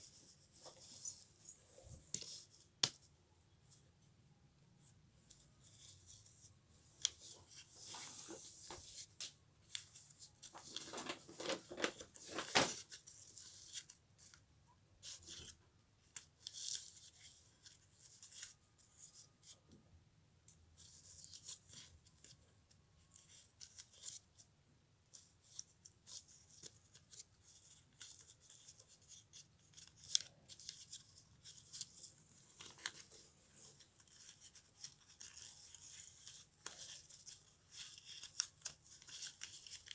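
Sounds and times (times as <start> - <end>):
paper crackling and rustling: 5.6 - 14.4, 25.1 - 39.9.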